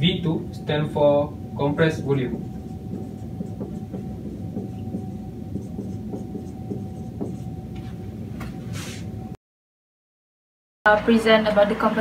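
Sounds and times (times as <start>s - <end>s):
low room hum: 0.0s - 9.4s
brushing sound: 1.8s - 8.0s
marker rubbing on whiteboard: 1.8s - 8.0s.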